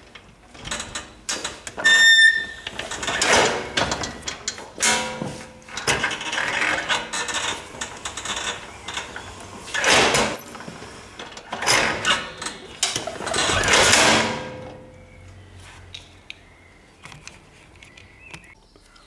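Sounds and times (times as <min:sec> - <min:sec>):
garden cart pulley rattling: 0:00.7 - 0:14.6.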